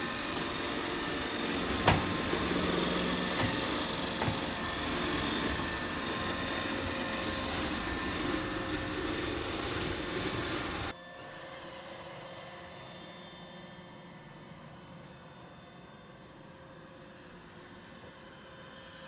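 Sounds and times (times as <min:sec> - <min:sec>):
robot vacuum motor whirring: 0:00.0 - 0:10.9.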